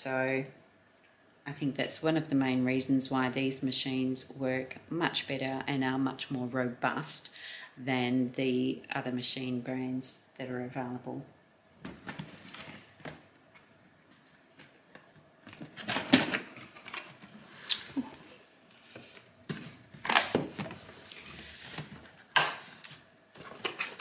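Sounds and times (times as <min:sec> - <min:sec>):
packaging rustling and scraping: 0:12.0 - 0:24.0.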